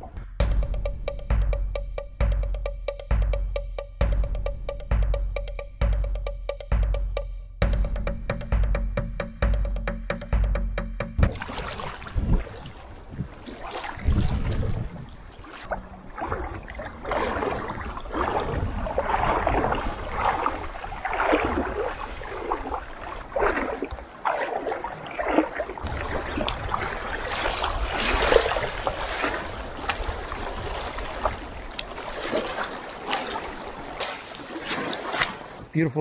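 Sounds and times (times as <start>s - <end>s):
low wind rumble: 11.2s - 24.9s, 25.6s - 32.2s
legs sloshing through water: 11.2s - 35.6s.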